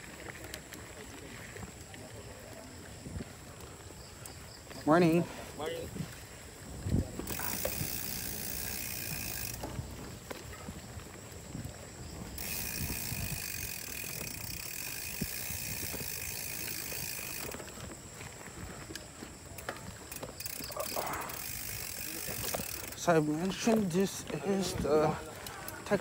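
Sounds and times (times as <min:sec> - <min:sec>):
bike tyre noise on dirt: 0:00.0 - 0:26.0
clicks and rattles from rough ground: 0:00.0 - 0:26.0
freewheel hub ratcheting: 0:07.1 - 0:10.2, 0:12.4 - 0:17.8, 0:19.6 - 0:23.7.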